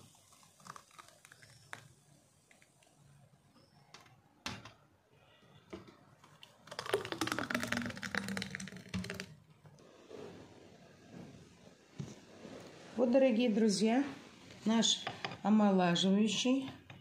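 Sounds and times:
thick drink glugging into mug: 0:06.6 - 0:09.4.

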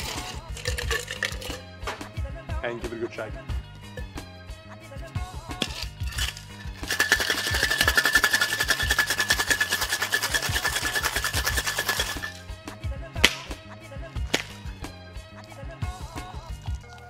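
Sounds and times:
ice rattling in metal shaker: 0:00.0 - 0:01.7, 0:05.6 - 0:12.5.

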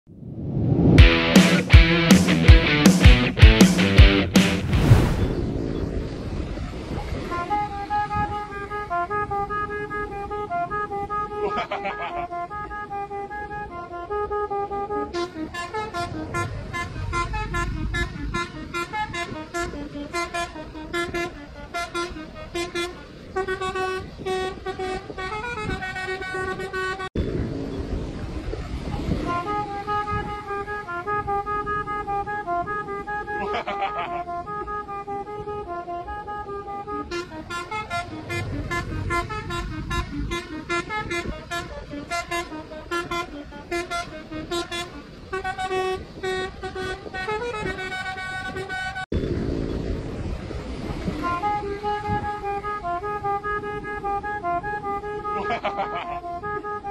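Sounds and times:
engine and road noise: 0:00.0 - 0:56.9
traffic noise: 0:00.1 - 0:56.9
musical horn playing a tune: 0:06.8 - 0:27.1, 0:28.8 - 0:49.1, 0:51.0 - 0:56.9.

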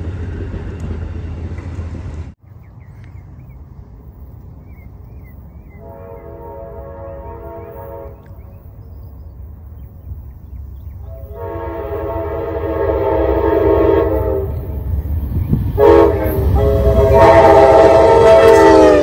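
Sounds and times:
train rumble: 0:00.0 - 0:19.0
locomotive air horn blasts: 0:05.8 - 0:08.5, 0:11.0 - 0:14.9, 0:15.7 - 0:19.0.

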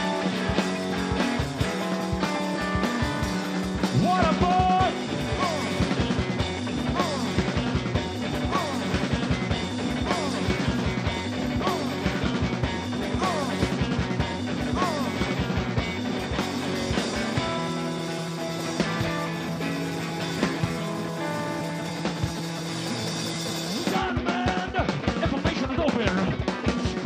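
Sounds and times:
electric guitar bending notes: 0:00.0 - 0:25.2
drums: 0:00.0 - 0:27.0.

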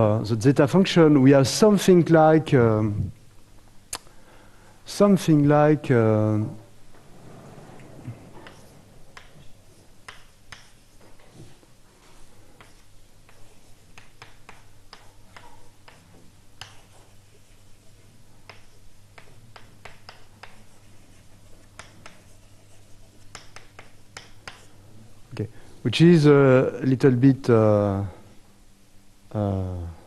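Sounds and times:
steady low hum: 0:00.0 - 0:30.0
chalk tapping on blackboard: 0:08.4 - 0:11.4, 0:12.6 - 0:24.8.

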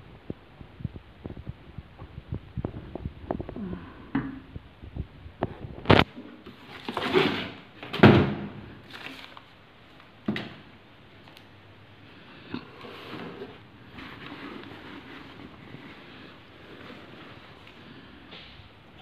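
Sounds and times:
fabric bag rustling: 0:12.8 - 0:18.2.

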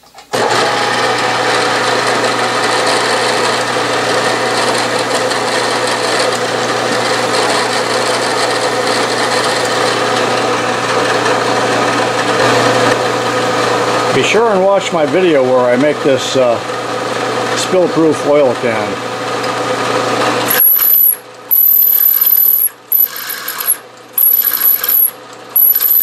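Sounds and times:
milling machine spindle running: 0:00.3 - 0:26.0
drill cutting into steel: 0:00.4 - 0:10.4, 0:20.4 - 0:26.0.

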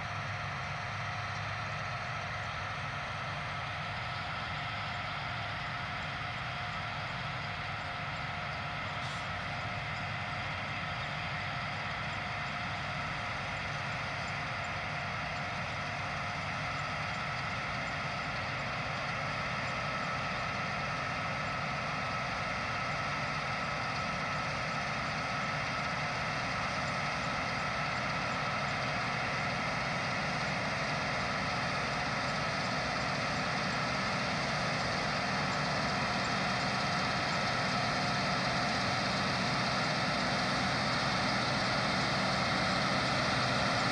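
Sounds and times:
combine harvester engine drone: 0:00.0 - 0:43.9
constant high whine: 0:00.0 - 0:43.9.

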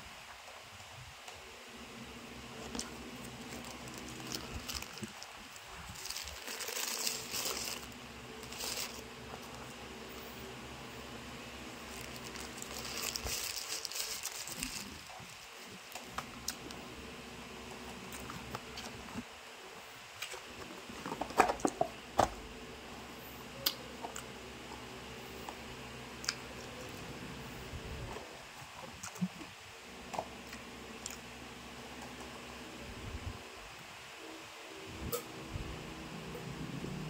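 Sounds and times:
steady low hum: 0:00.0 - 0:37.0
paper wrapper rustling: 0:02.6 - 0:09.8, 0:11.8 - 0:16.0.

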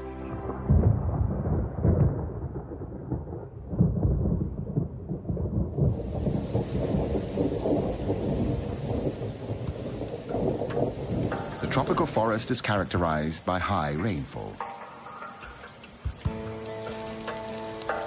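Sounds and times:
thunder rolling: 0:00.3 - 0:13.4
heavy rain hissing: 0:05.8 - 0:18.0.

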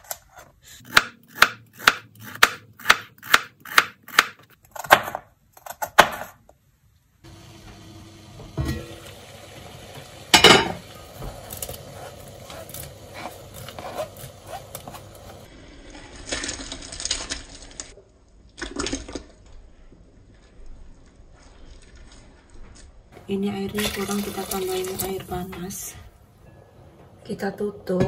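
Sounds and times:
knife scraping cutting board: 0:11.4 - 0:15.5.

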